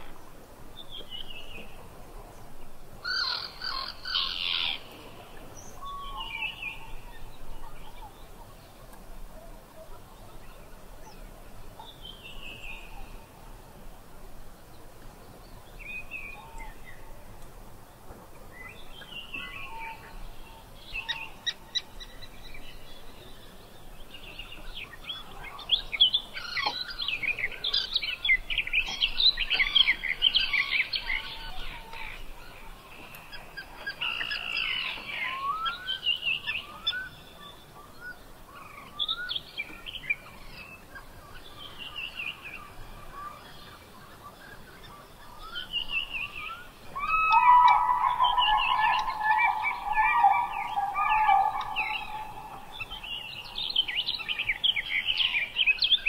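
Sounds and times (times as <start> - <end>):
faint outdoor hiss: 0.0 - 56.0
birds chirping and singing: 3.1 - 8.4, 18.5 - 56.0.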